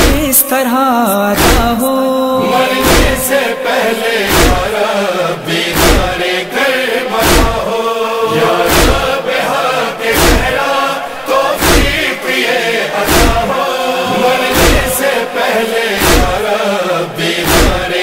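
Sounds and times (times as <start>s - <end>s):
chorus chanting held notes: 1.0s - 18.0s
heavy steady beat: 2.4s - 4.8s.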